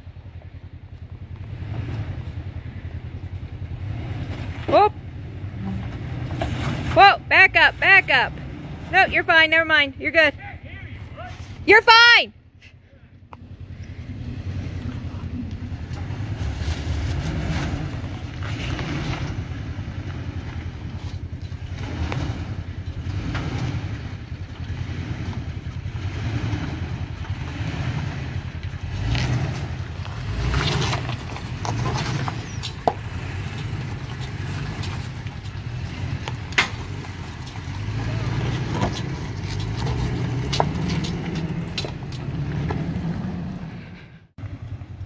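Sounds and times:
truck engine at low revs: 0:00.0 - 0:45.0
tyres crunching on rock: 0:29.1 - 0:43.1.

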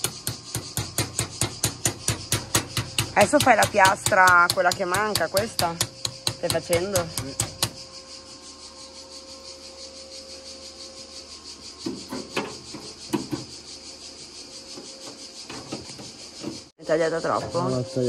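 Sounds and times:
scrapes and knocks on sheet metal: 0:00.0 - 0:07.8
high-pitched background tone: 0:16.8 - 0:18.0.

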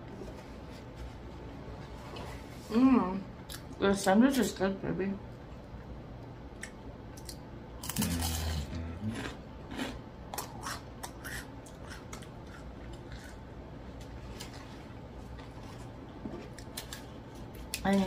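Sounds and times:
chewing crunchy food: 0:06.6 - 0:18.0
person humming: 0:08.0 - 0:09.3.

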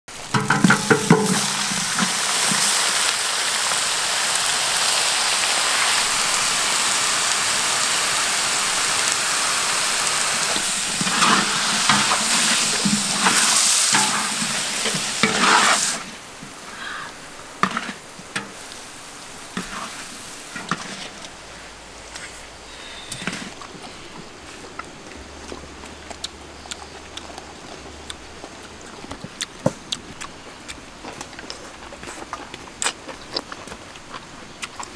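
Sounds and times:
food sizzling in a wok: 0:00.1 - 0:21.8
wooden spatula scraping: 0:00.3 - 0:03.1, 0:10.0 - 0:17.0, 0:17.6 - 0:18.9, 0:19.5 - 0:21.3.

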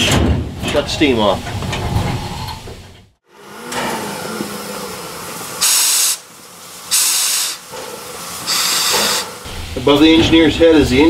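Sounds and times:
loud bursts of steam: 0:03.3 - 0:11.0
steam locomotive hissing: 0:03.3 - 0:11.0.

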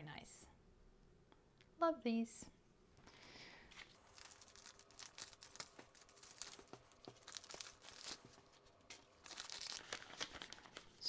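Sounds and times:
plastic packaging crinkling: 0:03.7 - 0:11.0.

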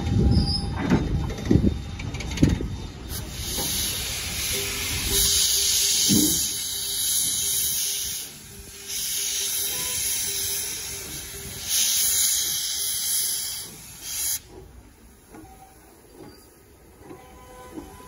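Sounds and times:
steam blowing in hissing blasts: 0:03.1 - 0:14.6.

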